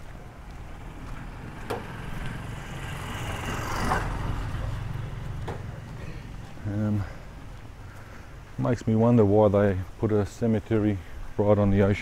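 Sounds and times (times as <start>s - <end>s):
motor vehicle passing: 0.0s - 8.5s.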